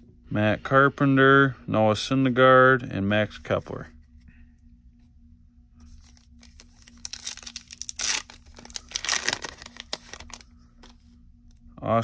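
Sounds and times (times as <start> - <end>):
foil wrapper crinkling: 6.2 - 11.0
foil wrapper ripping: 6.4 - 10.4.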